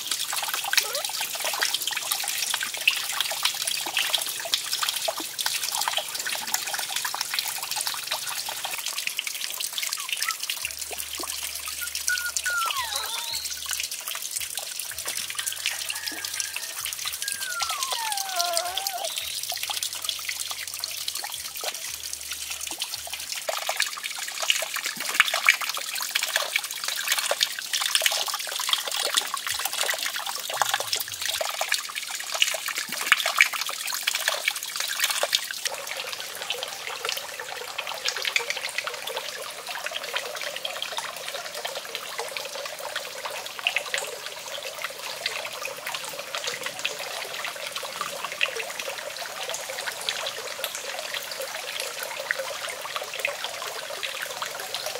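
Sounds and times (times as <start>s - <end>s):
water trickling into a pool: 0.0s - 54.9s.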